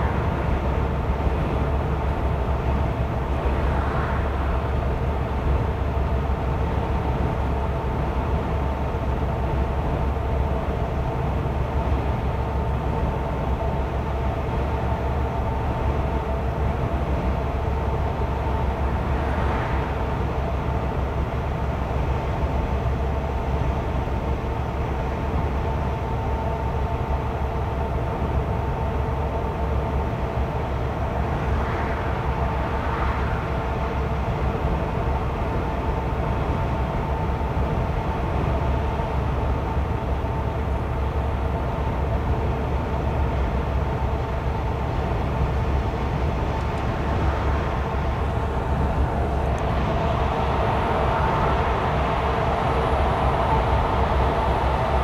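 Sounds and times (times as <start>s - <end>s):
road noise rushing: 0.0s - 5.6s, 18.8s - 21.1s, 30.5s - 35.6s, 45.0s - 55.0s
vehicle engine rumble: 44.8s - 55.0s.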